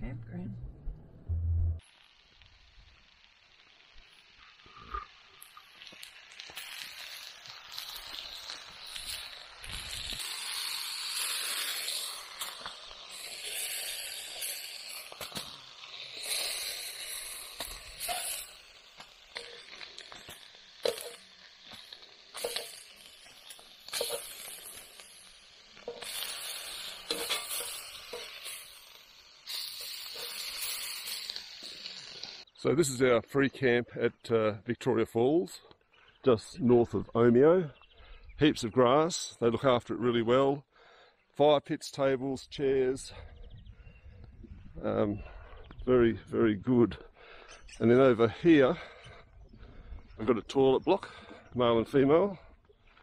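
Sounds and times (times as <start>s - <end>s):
food sizzling on hotplate: 1.8s - 32.5s
metal tongs clicking and scraping: 19.4s - 25.0s, 27.0s - 28.6s.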